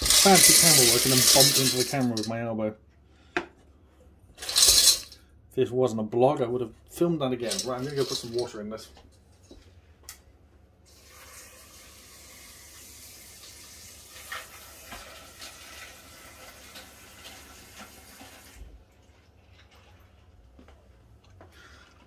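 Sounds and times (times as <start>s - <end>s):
kitchen tap running water: 0.0s - 2.0s, 10.9s - 19.8s.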